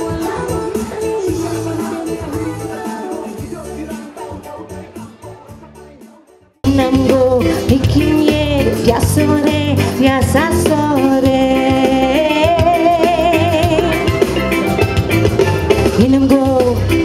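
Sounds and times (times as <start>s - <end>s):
woman singing into microphone: 0.0s - 3.4s, 6.6s - 14.2s, 16.0s - 17.0s
keyboard-led backing music: 0.0s - 17.0s.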